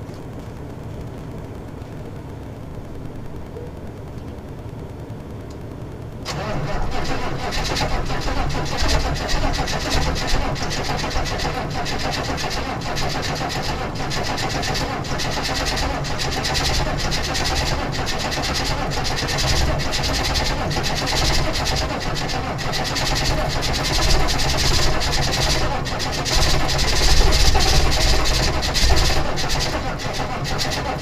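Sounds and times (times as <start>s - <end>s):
diesel engine cranking and starting: 6.2s - 31.0s.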